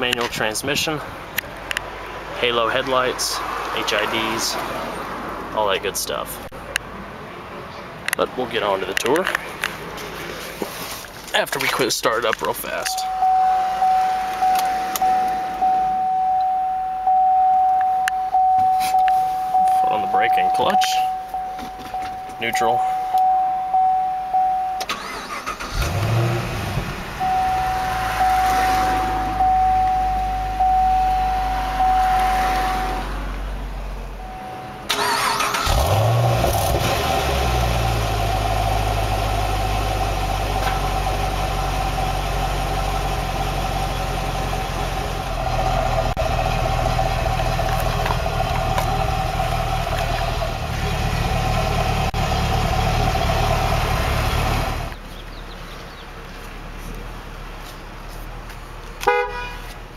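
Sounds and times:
car engine starting and idling: 0:08.1 - 0:57.6
high steady tone: 0:12.8 - 0:25.0, 0:27.2 - 0:33.0, 0:34.2 - 0:35.0.

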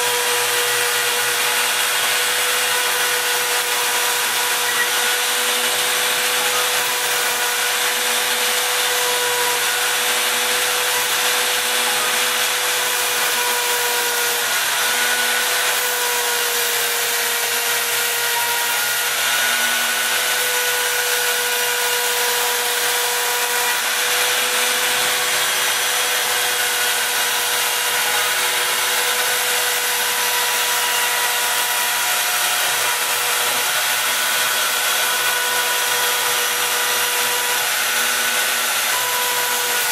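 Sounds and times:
router spindle whine: 0:00.0 - 0:39.9.

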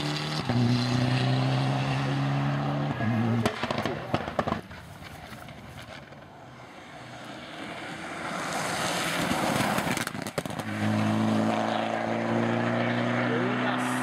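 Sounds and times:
rally car engine passing: 0:00.0 - 0:14.0
exhaust pops: 0:03.4 - 0:06.2, 0:09.2 - 0:10.8.

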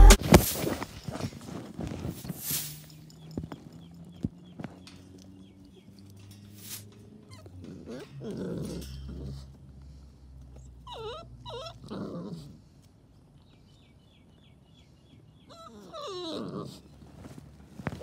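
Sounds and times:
puppies whimpering: 0:07.2 - 0:09.5, 0:10.6 - 0:12.5, 0:15.4 - 0:17.1.

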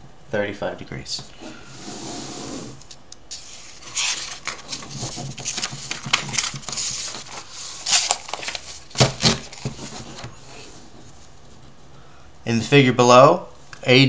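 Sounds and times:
paper rustling and crinkling: 0:03.3 - 0:11.6.

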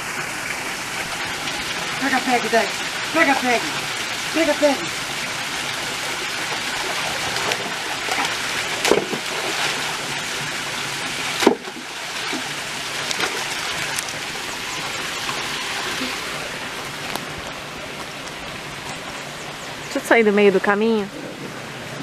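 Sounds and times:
rushing stream: 0:00.0 - 0:22.0
dogs splashing in water: 0:00.4 - 0:17.6.

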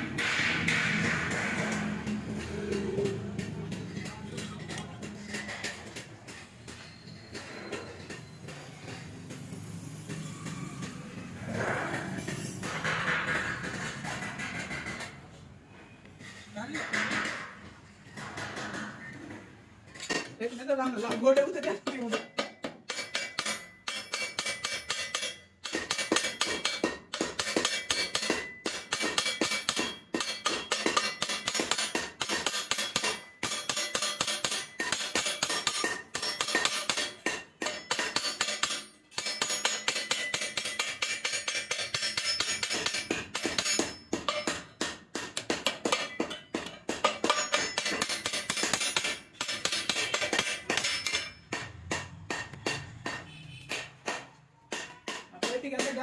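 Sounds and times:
hammer tapping sheet metal: 0:00.0 - 0:10.6, 0:12.1 - 0:15.2, 0:20.1 - 0:56.0.

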